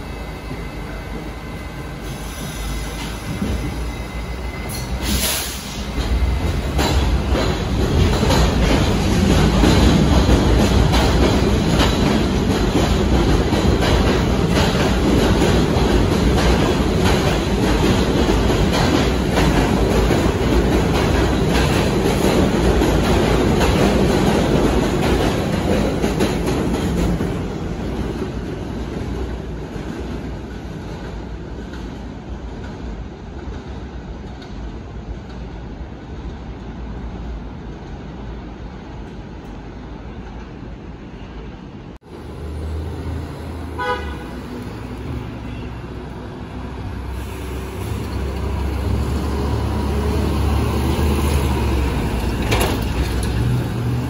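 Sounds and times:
subway train rumbling: 0.0 - 54.0
wheels clicking over rail joints: 51.7 - 54.0.

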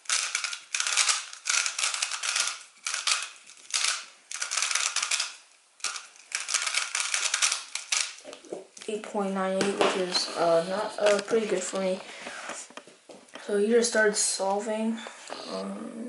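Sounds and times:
speed cube plastic clacking: 0.0 - 8.5.

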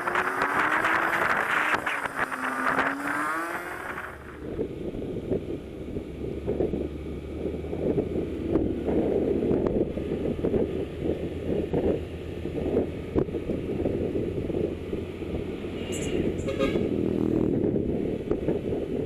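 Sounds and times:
motorcycle engine and road rumble: 0.0 - 19.0
wind buffeting microphone: 0.0 - 19.0.

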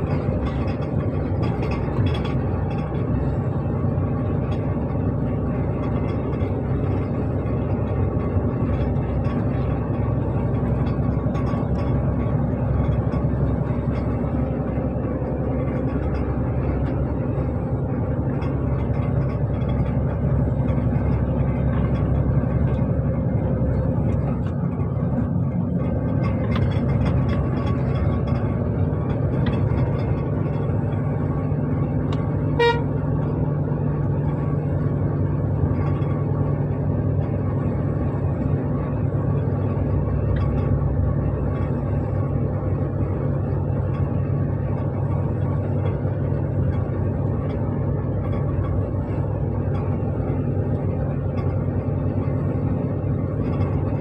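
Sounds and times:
lorry diesel engine running: 0.0 - 54.0
horn toot: 32.6 - 32.9.

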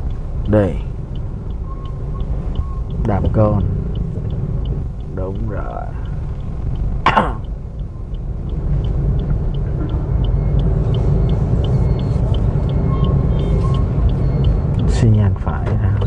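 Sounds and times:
car cabin rumble: 0.0 - 16.0
turn signal ticking: 0.0 - 16.0
person clearing throat: 7.0 - 7.5.

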